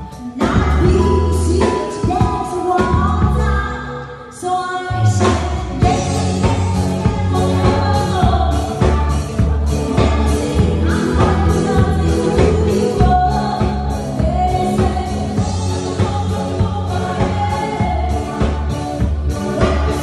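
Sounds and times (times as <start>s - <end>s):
live band playing: 0.0s - 20.0s
woman singing: 0.0s - 20.0s.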